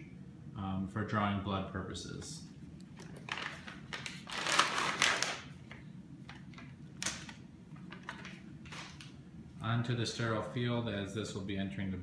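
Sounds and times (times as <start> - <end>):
packaging crinkling: 2.9 - 9.2.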